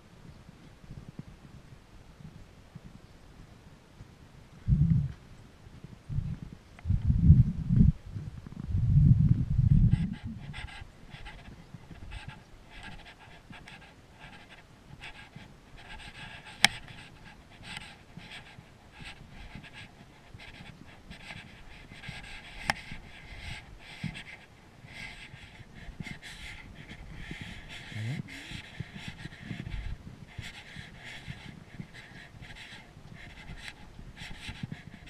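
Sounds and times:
person panting: 0:09.9 - 0:35.0.

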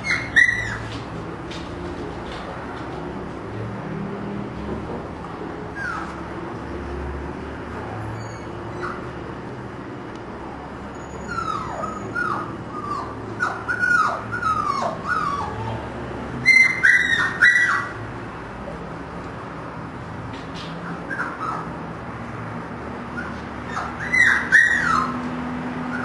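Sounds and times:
puppies whimpering and yelping: 0:00.0 - 0:00.9, 0:05.7 - 0:06.2, 0:11.0 - 0:18.0, 0:23.2 - 0:25.2.

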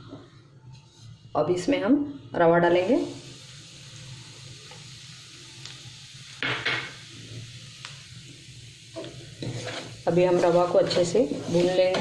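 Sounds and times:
semolina sizzling in ghee: 0:00.6 - 0:12.0
spatula scraping a pan: 0:09.0 - 0:12.0.

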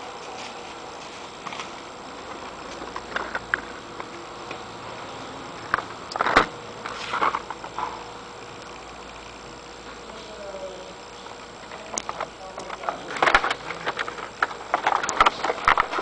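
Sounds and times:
plastic packaging crinkling: 0:11.7 - 0:16.0.

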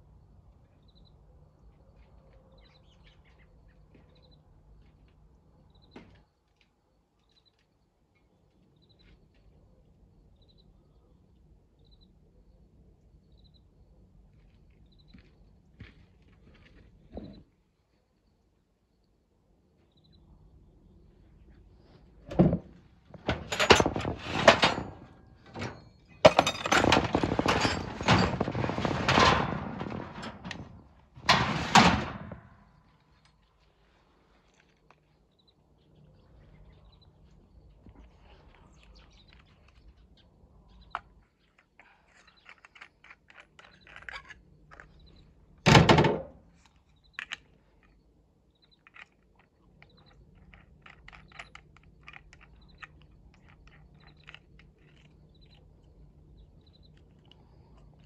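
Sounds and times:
hand tools clattering on metal cart: 0:22.3 - 0:32.7.

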